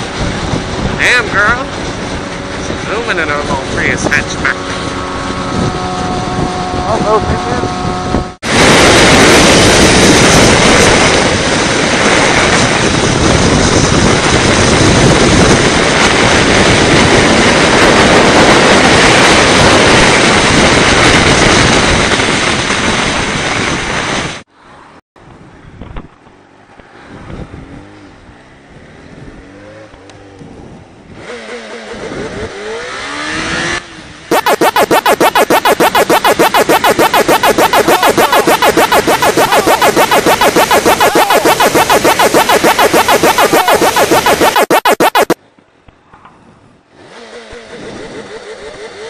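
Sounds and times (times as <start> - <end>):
wind rushing on microphone: 0.0 - 24.4
motorcycle engine accelerating: 34.3 - 45.4.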